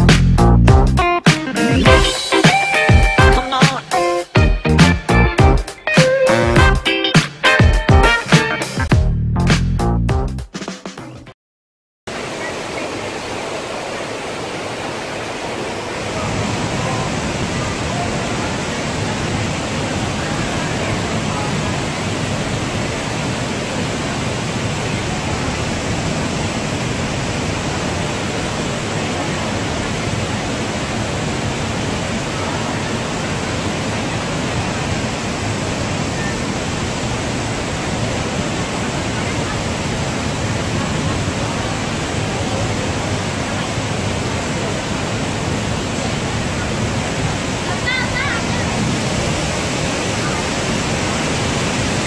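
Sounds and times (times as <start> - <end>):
waterfall splashing into water: 12.1 - 52.0.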